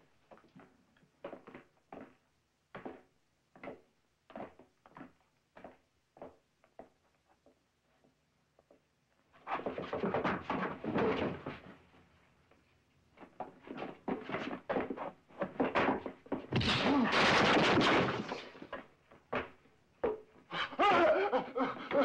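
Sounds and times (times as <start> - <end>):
punches and scuffling thuds: 15.7 - 18.8.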